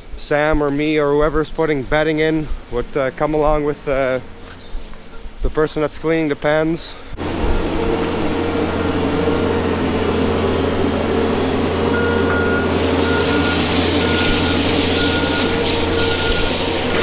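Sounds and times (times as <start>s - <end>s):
loader engine running: 7.1s - 17.0s
reversing alarm beeping: 7.2s - 17.0s.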